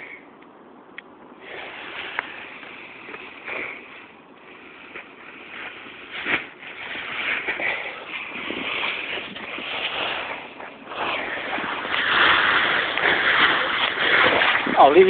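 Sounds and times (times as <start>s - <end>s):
nylon wing fabric rustling and flapping: 4.8s - 15.0s
wind on microphone: 5.9s - 15.0s.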